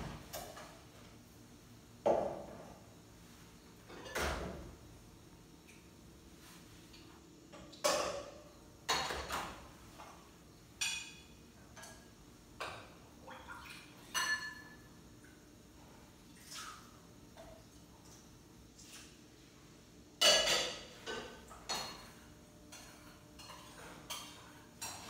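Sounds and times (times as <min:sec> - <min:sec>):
dishes and utensils clinking: 0:03.8 - 0:04.6, 0:10.8 - 0:12.9, 0:14.0 - 0:14.9, 0:20.2 - 0:25.0.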